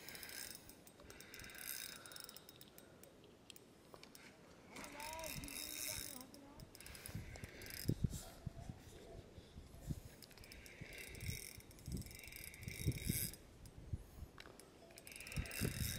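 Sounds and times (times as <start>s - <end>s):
fishing reel whirring: 0.0s - 3.2s, 4.9s - 8.1s, 10.1s - 15.9s.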